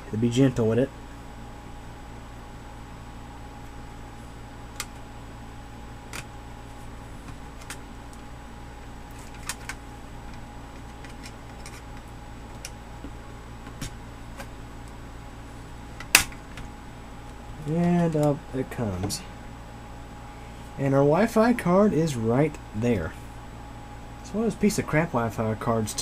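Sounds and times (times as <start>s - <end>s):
steady background hum: 0.0s - 26.0s
loud plastic cover snap: 16.0s - 16.4s.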